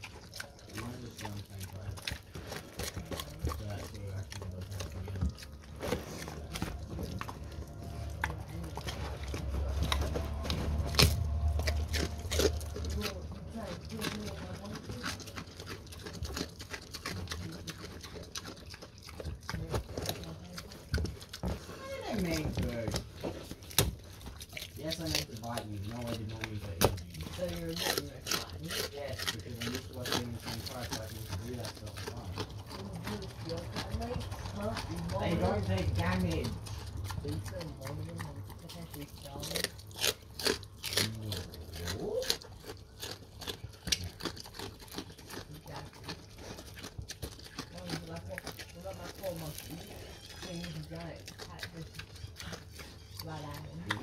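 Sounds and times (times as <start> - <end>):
pig chewing: 0.0 - 54.0
pig grunting: 40.8 - 42.6.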